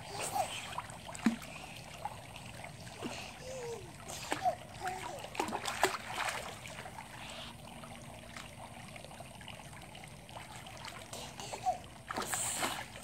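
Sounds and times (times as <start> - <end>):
pool water lapping: 0.0 - 13.0
baby kicking splash: 0.2 - 1.6, 3.0 - 7.0.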